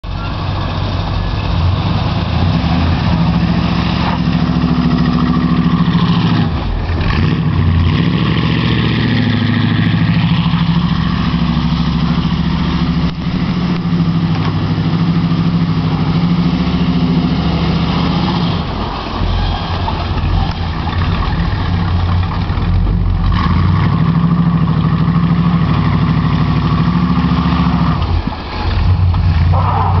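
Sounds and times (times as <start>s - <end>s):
car engine revving loudly: 1.6s - 18.8s.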